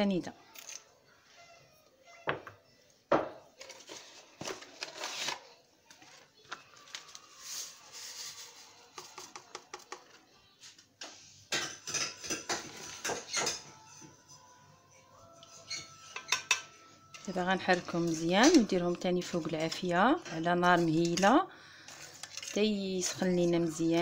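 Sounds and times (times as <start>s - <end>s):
metal spoon clinking on saucepan: 15.7s - 18.8s.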